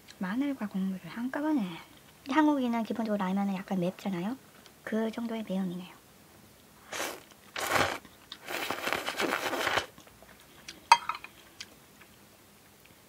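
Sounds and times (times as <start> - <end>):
person slurping noodles: 6.9 - 9.9.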